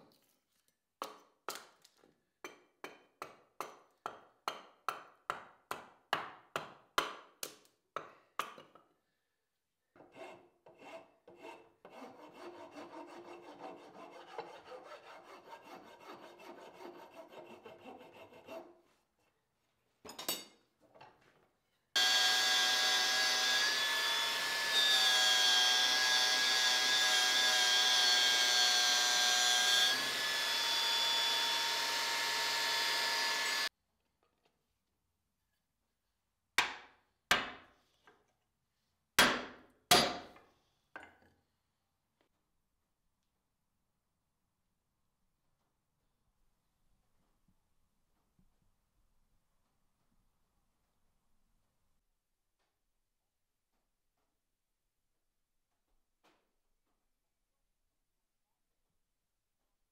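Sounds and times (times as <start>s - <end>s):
hatchet chopping wood: 2.5s - 8.6s, 36.6s - 37.6s, 39.2s - 40.3s
file scraping wood: 10.0s - 19.1s
angle grinder whining: 22.0s - 33.7s.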